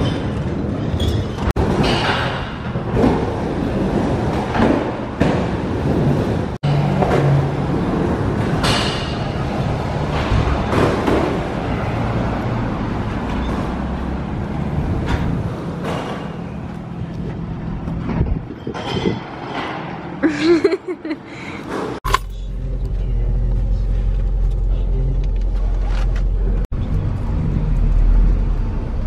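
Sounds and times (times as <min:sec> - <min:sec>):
cars passing on a road: 0:02.0 - 0:22.0, 0:22.6 - 0:29.0
low engine hum: 0:22.1 - 0:29.0.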